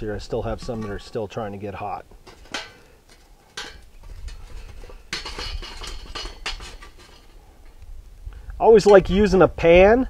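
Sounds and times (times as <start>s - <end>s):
metal tongs clinking and scraping: 0.4s - 1.3s, 2.2s - 7.4s.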